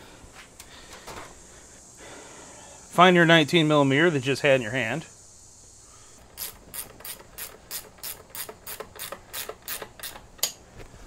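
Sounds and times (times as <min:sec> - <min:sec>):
ratchet wrench clicking: 0:06.3 - 0:10.6.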